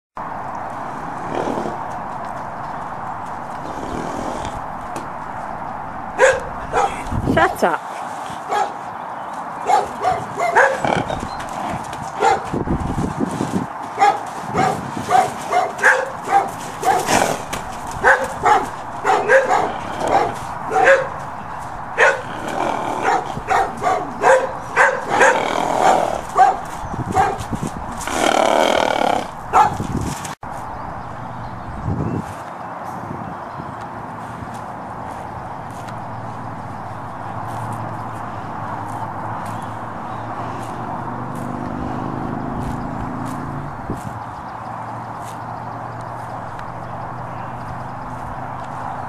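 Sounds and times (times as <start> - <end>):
dog barking: 6.2 - 7.0, 8.5 - 8.8, 9.6 - 10.9, 12.2 - 12.5, 14.0 - 17.2, 18.0 - 21.2, 22.0 - 22.3, 23.0 - 27.5, 29.5 - 29.8.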